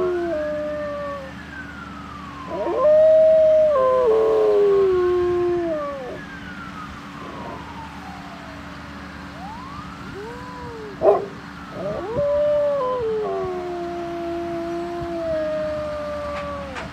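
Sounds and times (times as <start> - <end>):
dog howling: 2.5 - 6.2, 10.2 - 16.9
dog yelping: 11.0 - 11.4.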